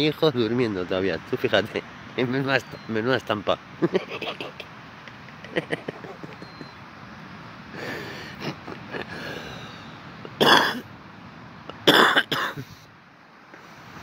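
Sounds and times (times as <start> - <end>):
person clearing throat: 10.4 - 10.8, 11.8 - 12.6
person coughing: 10.4 - 10.8, 11.8 - 12.7.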